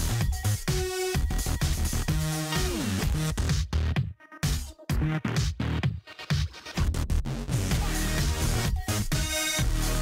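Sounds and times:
electronic music with steady beat: 0.0s - 10.0s.

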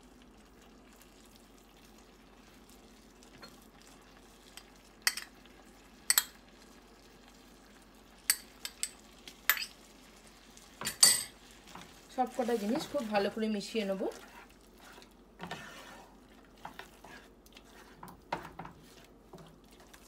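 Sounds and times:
chutney simmering sizzle: 0.0s - 20.0s
spoon clinking against glass bowl: 8.3s - 9.8s.

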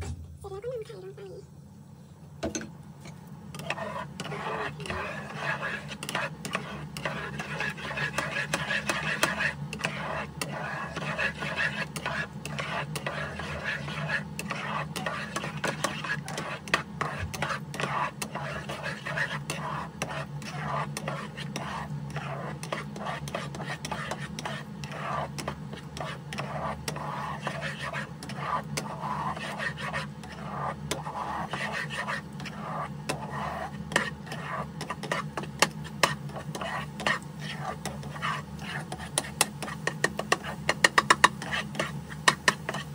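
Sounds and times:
eggs sizzling in oil: 3.0s - 42.9s
spatula scraping a wok: 3.4s - 42.9s
spatula tapping against pan: 39.1s - 42.9s.

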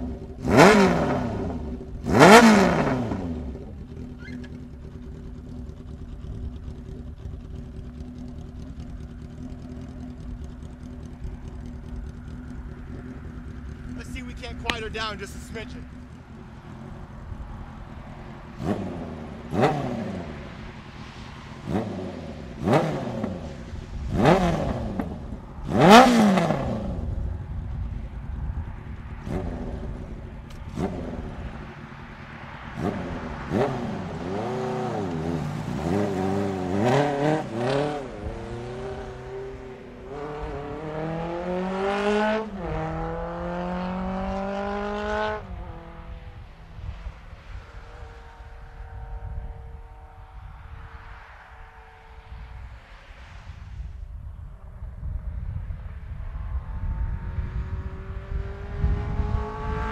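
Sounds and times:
motorcycle throttle blips: 0.0s - 20.6s
motorcycle accelerating through gears: 0.0s - 53.9s, 55.0s - 59.9s.

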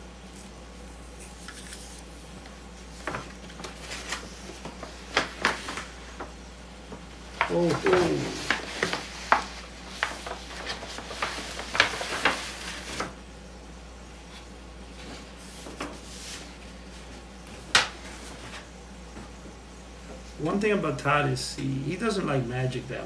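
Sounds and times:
paper envelope crinkling: 2.9s - 6.3s, 7.3s - 13.2s.

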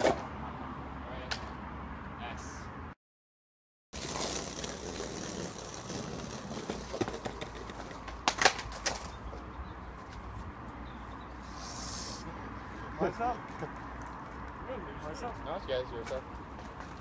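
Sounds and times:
skateboard wheels rolling on concrete: 0.0s - 0.4s, 4.0s - 11.8s, 12.6s - 17.0s
skateboard pop and clatter: 4.0s - 9.2s.

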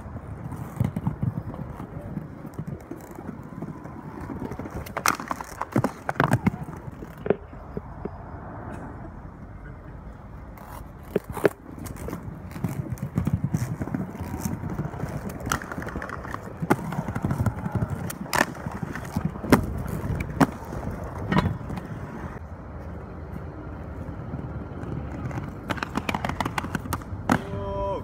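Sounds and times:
skates clacking on ledge: 0.0s - 7.9s, 10.6s - 22.4s, 24.8s - 27.7s
inline skates rolling on paving: 0.0s - 8.7s, 9.3s - 28.0s.

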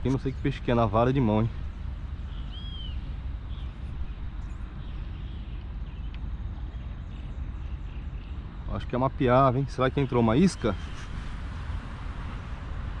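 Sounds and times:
low outdoor rumble: 0.0s - 13.0s
bird chirp: 1.6s - 8.5s.

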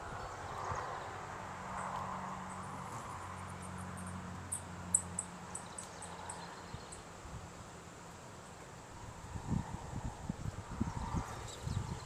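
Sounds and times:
wind on microphone: 8.9s - 12.0s.

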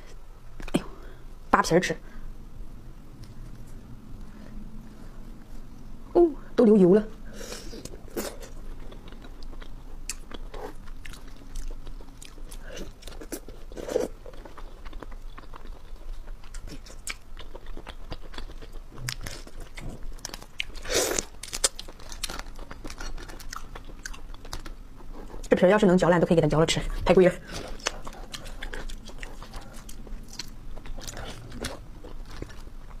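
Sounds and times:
chewing and crunching: 7.8s - 25.6s, 27.1s - 33.0s.

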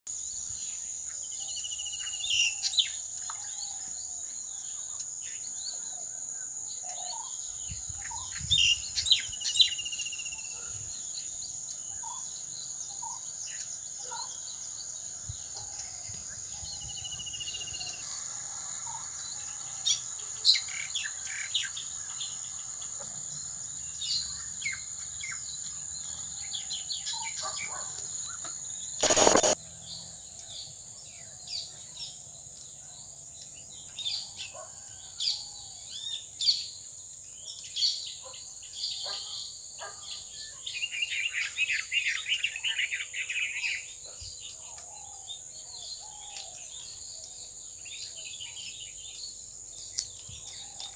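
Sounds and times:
high-pitched insect drone: 29.0s - 29.6s
loud burst of noise: 29.0s - 29.6s.

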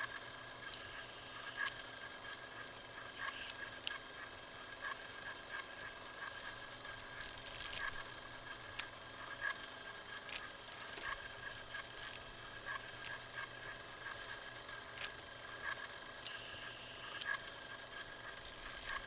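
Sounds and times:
faint hum: 0.0s - 19.0s
static hiss: 6.1s - 15.2s, 16.2s - 19.0s
crackles and pops: 6.2s - 16.4s, 18.2s - 19.0s.

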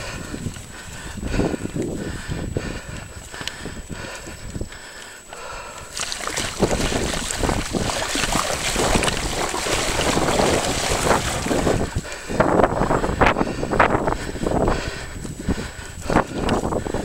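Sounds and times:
wind buffeting microphone: 0.0s - 17.0s
bike tyres splashing through mud: 5.9s - 12.0s.

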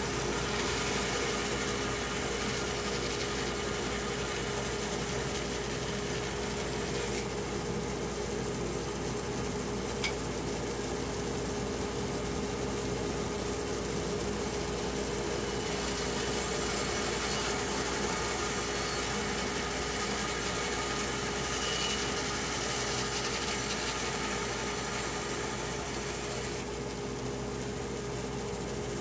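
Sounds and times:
power saw milling wood: 15.4s - 26.7s.

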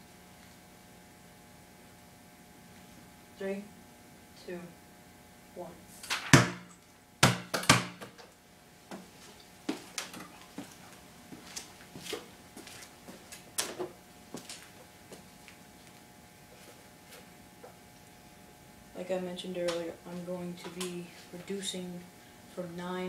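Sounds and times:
basketball bouncing on concrete: 6.3s - 8.2s.

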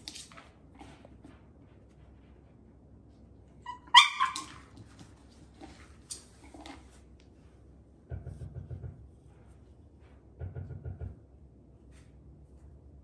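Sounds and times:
dog yelping bark: 3.7s - 4.7s.

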